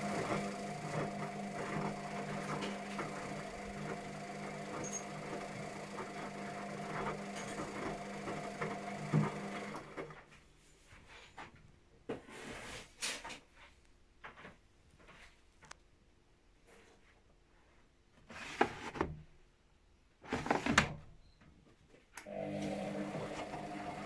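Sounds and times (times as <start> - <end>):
washing machine hum: 0.0 - 10.4, 22.2 - 24.0.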